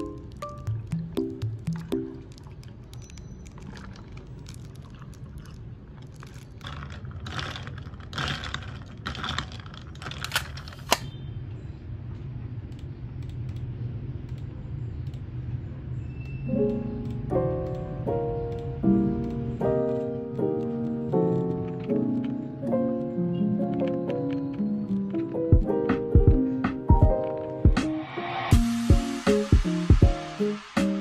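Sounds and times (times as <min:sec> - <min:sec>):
soft piano music: 0:00.0 - 0:03.5, 0:16.4 - 0:31.0.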